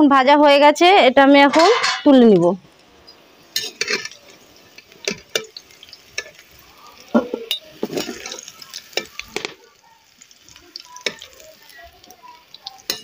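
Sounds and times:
metal spatula clinking on wok: 1.5s - 2.2s, 3.6s - 4.2s, 7.1s - 8.3s, 12.6s - 13.0s.

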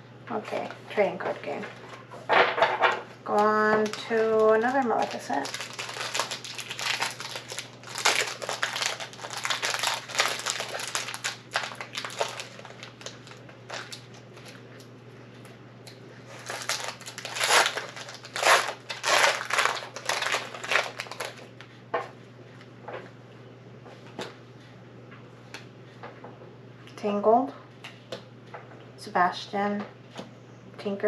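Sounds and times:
foil wrapper crinkling: 3.4s - 14.6s, 16.3s - 21.6s.

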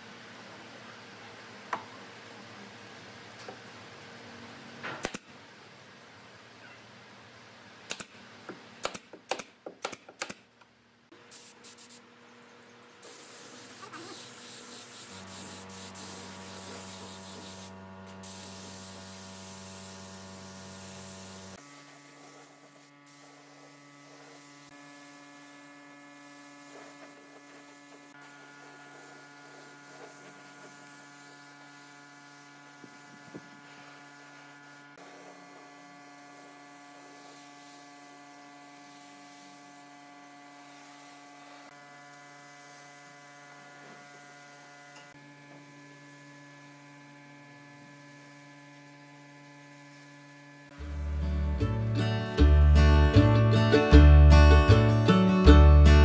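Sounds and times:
spray gun hissing: 11.3s - 12.0s, 13.0s - 24.7s.

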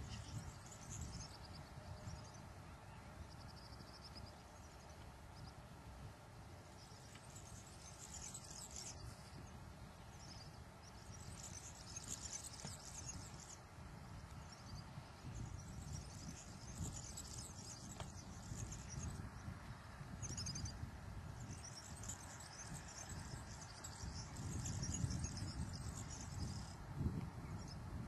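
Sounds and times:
insects chirping: 0.0s - 2.4s, 6.7s - 19.6s, 20.2s - 20.8s, 21.4s - 26.8s
wind on microphone: 0.0s - 28.0s.

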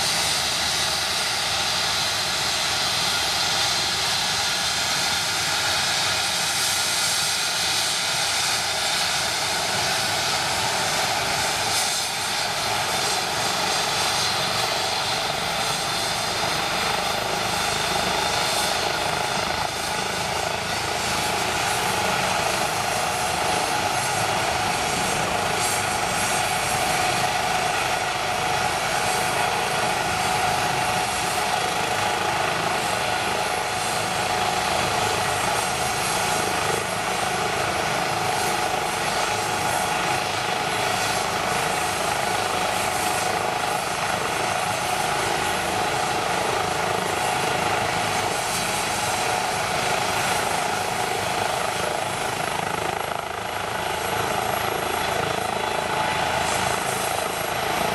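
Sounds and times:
helicopter turbine and rotor rush: 0.0s - 57.9s
high turbine whine: 0.0s - 57.9s.

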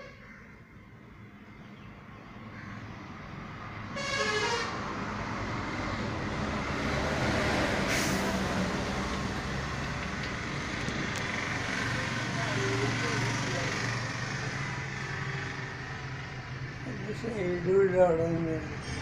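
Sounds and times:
passing vehicles: 0.0s - 19.0s
vehicle horn toot: 4.0s - 4.8s.

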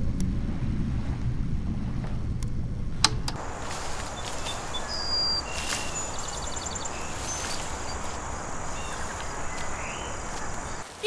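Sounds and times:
birds chirping: 0.0s - 10.8s
breeze through grass and trees: 0.0s - 11.0s.

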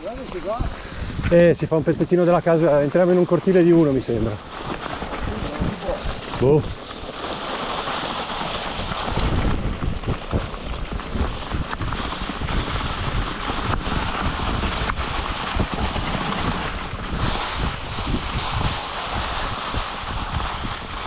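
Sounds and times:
bike rattling over bumps: 0.0s - 21.0s
tyres rolling through dry leaves: 0.0s - 21.0s
wind buffeting microphone: 0.0s - 21.0s.

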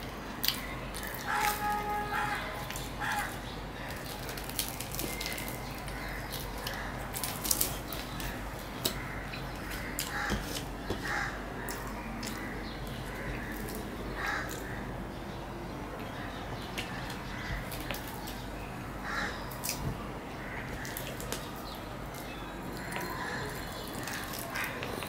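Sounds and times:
fried bread tearing: 2.7s - 11.2s, 22.1s - 25.0s.

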